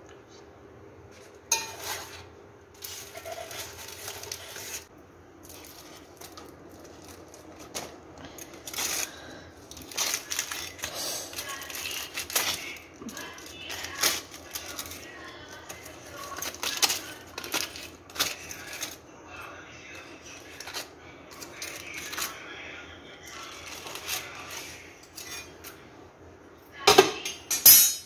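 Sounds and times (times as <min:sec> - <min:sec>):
aluminium foil crinkling: 0:01.2 - 0:25.8
metal spatula clinking on pot: 0:01.5 - 0:02.0, 0:27.2 - 0:28.0.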